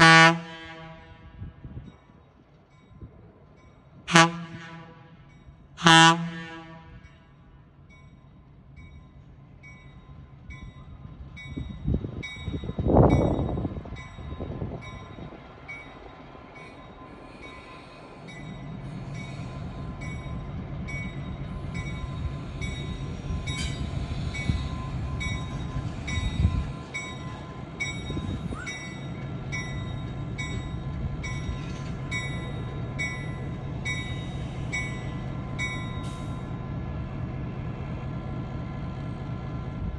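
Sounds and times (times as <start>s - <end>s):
diesel locomotive engine: 0.0s - 39.9s.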